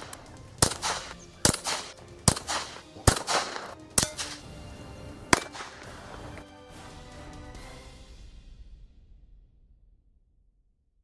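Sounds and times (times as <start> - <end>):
gunshots with short echo: 0.0 - 4.5, 5.3 - 6.1.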